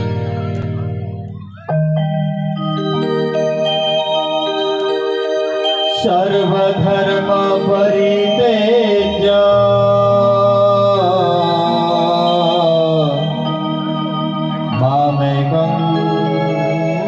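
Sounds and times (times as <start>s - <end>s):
organ-like drone: 0.0s - 17.0s
man singing through microphone: 5.9s - 13.5s, 14.7s - 17.0s.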